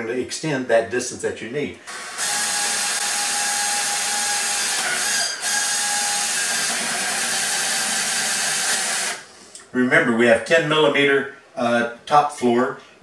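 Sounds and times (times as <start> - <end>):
cordless drill whining: 1.9 - 9.3.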